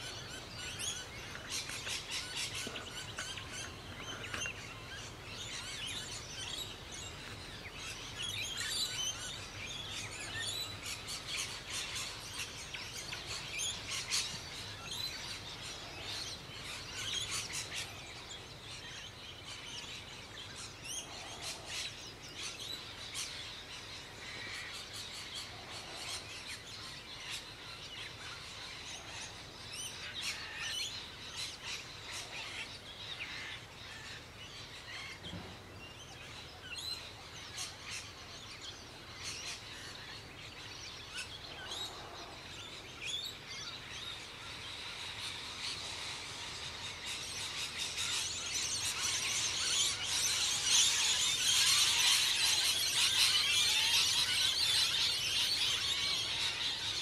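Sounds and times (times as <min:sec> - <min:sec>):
birds chirping and twittering: 0:00.0 - 0:57.0
steady outdoor hiss: 0:00.0 - 0:57.0.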